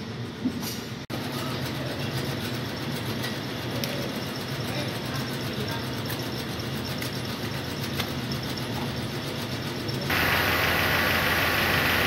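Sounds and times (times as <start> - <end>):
engine idling: 1.2 - 12.0.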